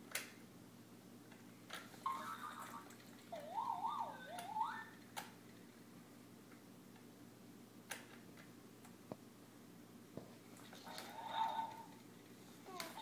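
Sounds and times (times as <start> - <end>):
baby cooing: 12.6 - 13.0.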